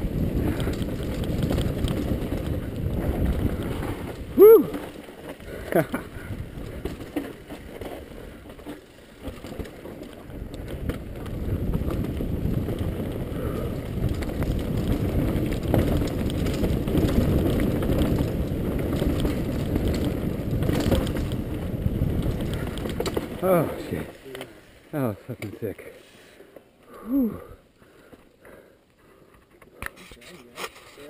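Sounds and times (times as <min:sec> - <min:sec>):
bike rattling and knocking: 0:00.0 - 0:24.3
bike tyres rolling over dirt: 0:00.0 - 0:31.0.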